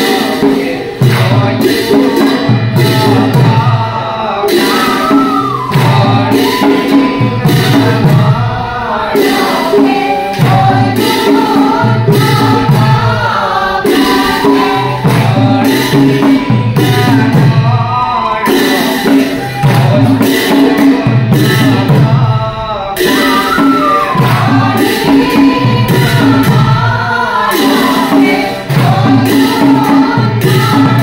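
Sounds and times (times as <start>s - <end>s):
group devotional chanting: 0.0s - 31.0s
hand claps: 1.0s - 1.3s.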